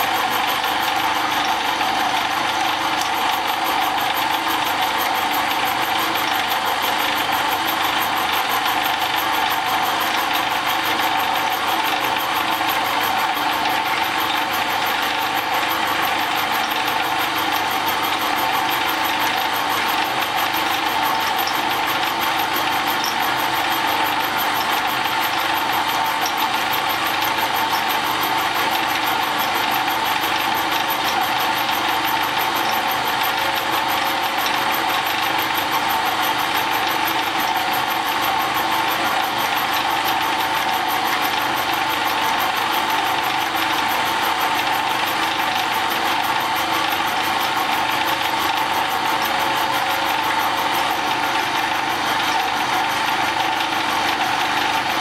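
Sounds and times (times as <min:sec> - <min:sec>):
milling machine cutting metal: 0:39.2 - 0:55.0.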